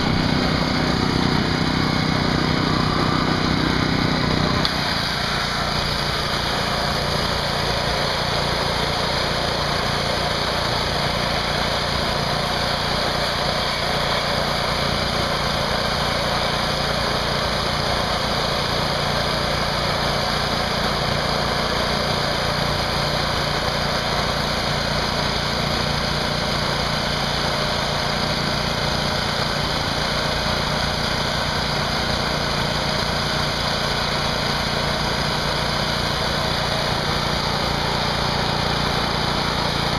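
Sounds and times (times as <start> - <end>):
high-pressure water spray hissing: 0.0 - 39.9
small gasoline engine running: 0.0 - 39.9.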